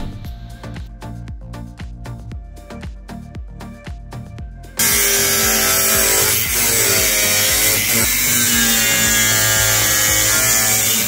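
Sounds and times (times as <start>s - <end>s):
angle grinder cutting steel: 4.8s - 11.0s.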